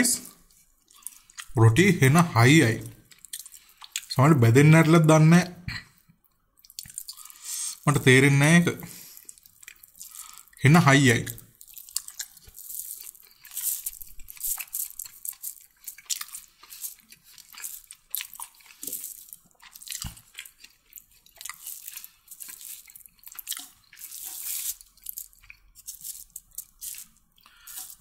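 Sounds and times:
chewing with wet clicks and crunches: 0.2s - 1.6s, 2.6s - 4.2s, 5.8s - 7.9s, 8.9s - 10.6s, 11.2s - 28.0s.

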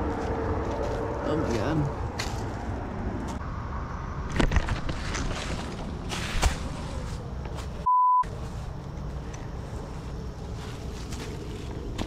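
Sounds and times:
crunching steps: 0.0s - 3.4s, 4.4s - 12.0s
footsteps on rough path: 0.0s - 3.4s, 4.3s - 12.0s
high-pitched censor bleep: 7.8s - 8.3s.

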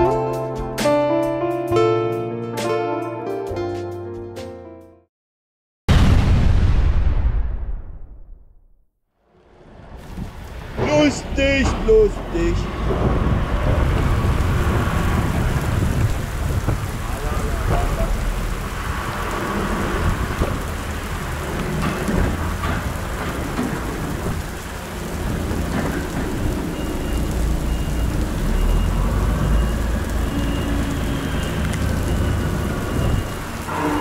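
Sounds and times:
heavy rain on truck cab: 9.4s - 34.0s
tyres rolling on wet ground: 9.4s - 34.0s
truck diesel engine rumble: 10.4s - 34.0s.

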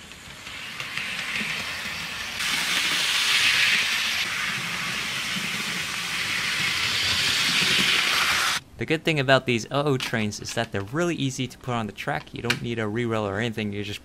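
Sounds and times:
model train running on track: 0.0s - 8.6s.

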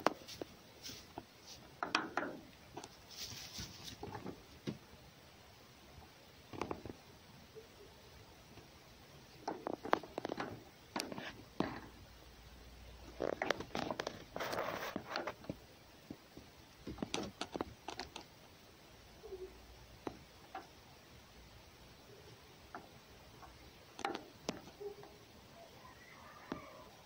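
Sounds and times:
cat rustling in hay: 0.1s - 1.7s, 2.9s - 4.5s.

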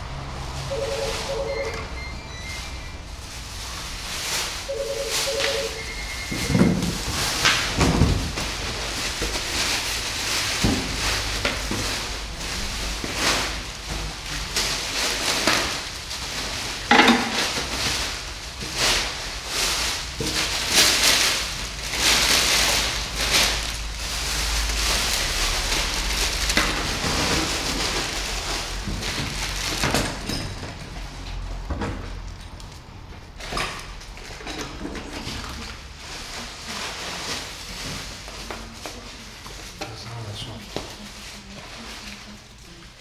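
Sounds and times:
plastic packaging crinkling: 3.0s - 30.2s.

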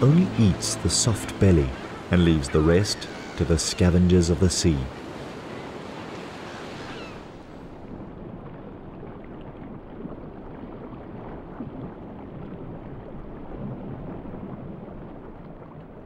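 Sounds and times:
water lapping: 0.0s - 7.9s
wind: 0.0s - 16.0s.

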